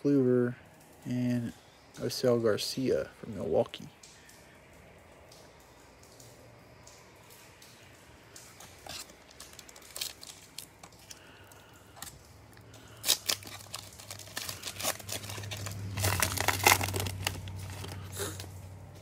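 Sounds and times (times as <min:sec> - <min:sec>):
plastic wrapper crinkling: 0:08.3 - 0:18.7
wrapper tearing: 0:08.6 - 0:18.6.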